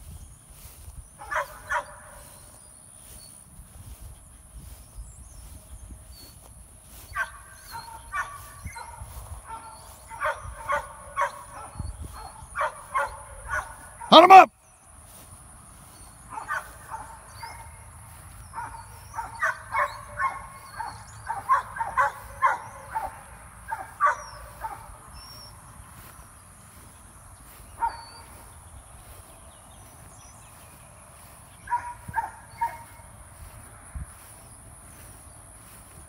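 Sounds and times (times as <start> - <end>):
dog barking: 1.2 - 2.2, 7.1 - 14.4, 16.3 - 17.8, 18.5 - 25.0, 27.8 - 28.3, 31.6 - 33.0.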